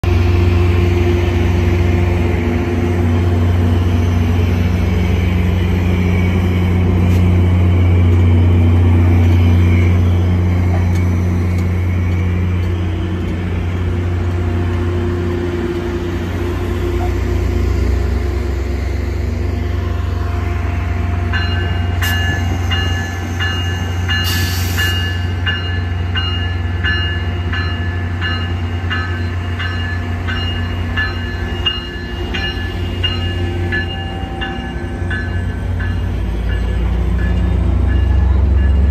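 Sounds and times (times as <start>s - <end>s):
diesel locomotive engine droning: 0.0s - 38.9s
locomotive bell ringing: 19.6s - 38.9s.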